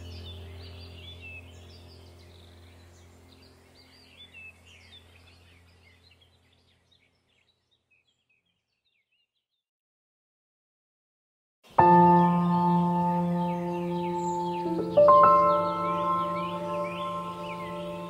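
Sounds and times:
low steady hum: 0:00.0 - 0:08.1, 0:11.7 - 0:18.0
bird chirps: 0:00.0 - 0:09.6, 0:11.7 - 0:18.0.

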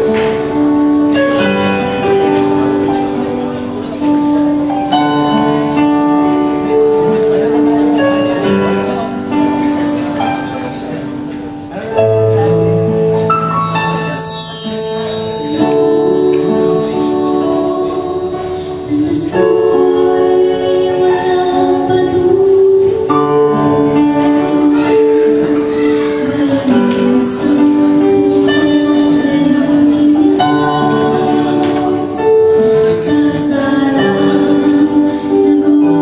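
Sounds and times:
musical accompaniment: 0:00.0 - 0:36.0
woman singing into microphone: 0:15.3 - 0:36.0.

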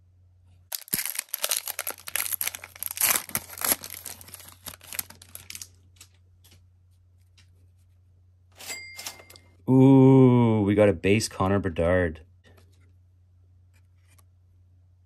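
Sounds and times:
wrapper tearing and crinkling: 0:00.7 - 0:05.8.

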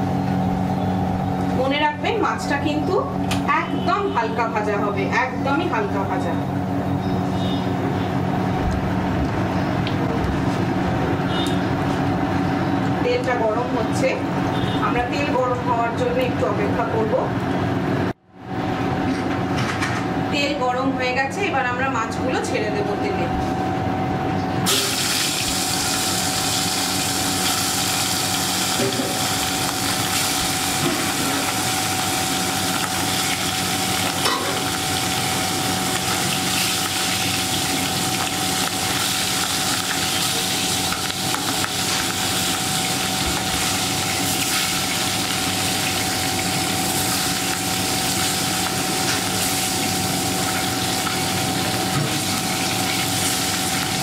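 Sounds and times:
fish sizzling in hot oil: 0:24.7 - 0:54.0.

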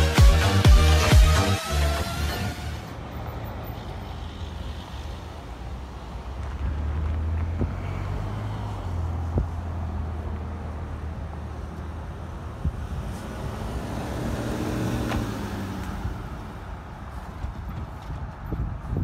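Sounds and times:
road traffic passing: 0:00.0 - 0:19.0.

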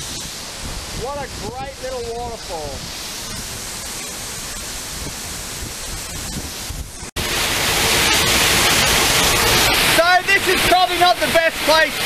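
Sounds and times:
waterfall pouring onto rocks: 0:00.0 - 0:12.0.

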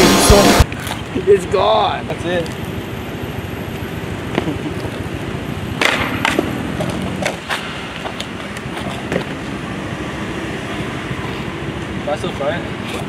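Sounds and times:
skateboard clacking on concrete: 0:05.8 - 0:09.5.

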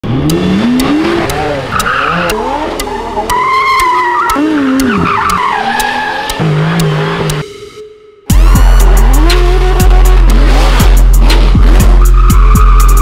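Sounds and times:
car engines revving: 0:00.0 - 0:07.4, 0:08.3 - 0:13.0
sharp ticks: 0:00.1 - 0:07.4
tyres squealing: 0:01.3 - 0:07.3.

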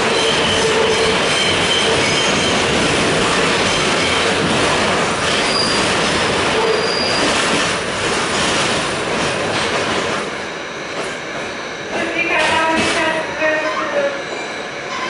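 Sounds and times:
subway car wheels rumbling: 0:00.0 - 0:15.0
high-pitched wheel squeals: 0:05.4 - 0:05.9, 0:06.6 - 0:07.4, 0:13.4 - 0:15.0.

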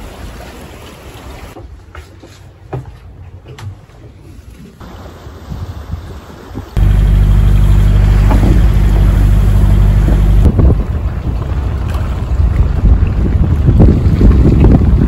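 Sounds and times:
water rushing along hull: 0:00.0 - 0:03.2, 0:04.0 - 0:15.0
wind buffeting microphone: 0:05.4 - 0:15.0
boat engine running: 0:06.8 - 0:15.0.

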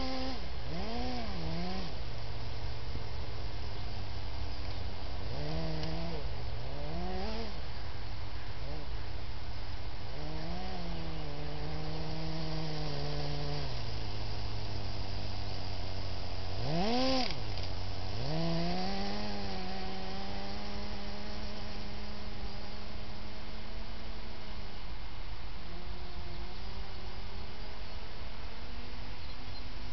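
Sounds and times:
steady hiss: 0:00.0 - 0:29.9
toy vehicle motors whining: 0:10.2 - 0:22.8.

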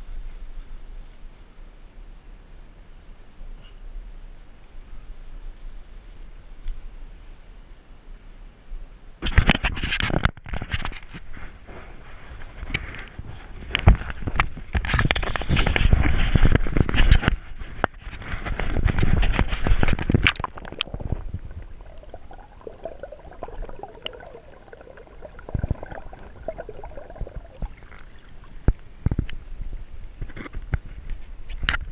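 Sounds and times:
splashing in stream: 0:18.6 - 0:28.8
underwater stream gurgle: 0:18.6 - 0:29.4.

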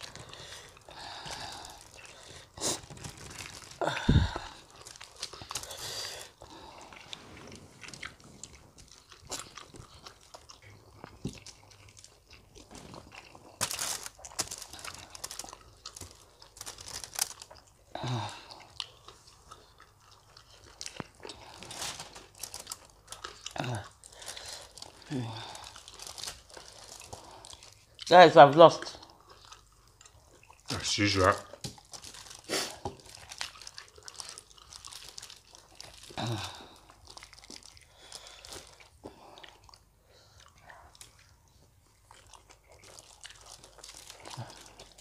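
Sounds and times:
meat tearing: 0:00.0 - 0:07.1, 0:07.8 - 0:17.7, 0:18.6 - 0:28.2, 0:28.8 - 0:39.9, 0:42.2 - 0:45.0
crunching and chewing: 0:00.0 - 0:45.0
low vocal sounds: 0:03.8 - 0:04.6.

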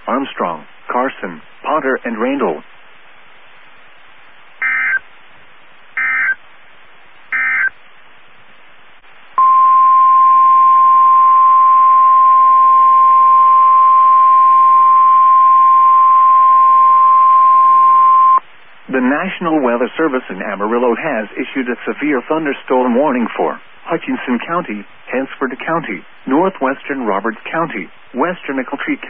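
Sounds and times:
faint radio hiss: 0:00.0 - 0:29.0
short chirping data bursts: 0:03.6 - 0:05.0, 0:05.8 - 0:06.4, 0:07.3 - 0:09.8
steady warning alarm tone: 0:04.6 - 0:05.0, 0:06.0 - 0:06.4, 0:07.3 - 0:07.7, 0:09.4 - 0:18.4.

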